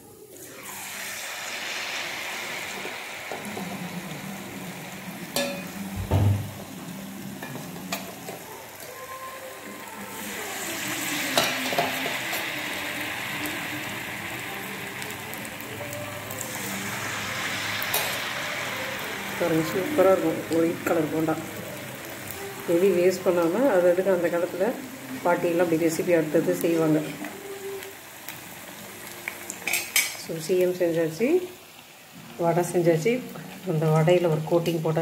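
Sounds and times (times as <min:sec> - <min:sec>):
batter sizzling in hot oil: 0:00.0 - 0:35.0
heavy thump: 0:06.0 - 0:06.5.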